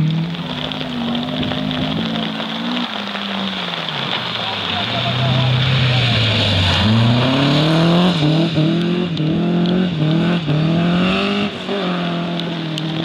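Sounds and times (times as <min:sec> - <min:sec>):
rally car engine at high revs: 0:00.0 - 0:13.0
tyres on wet gravel: 0:00.0 - 0:13.0.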